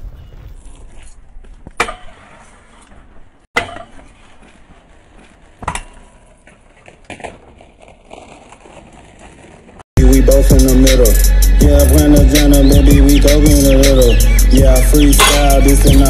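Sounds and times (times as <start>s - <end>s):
scooter wheels rolling on concrete: 0.0s - 10.0s
scooter deck clacking on ground: 0.6s - 9.7s.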